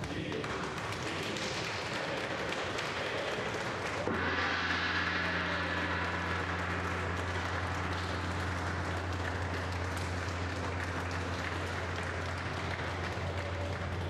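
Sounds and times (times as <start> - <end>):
group applauding: 0.0 - 14.0
large gong ringing: 4.0 - 14.0.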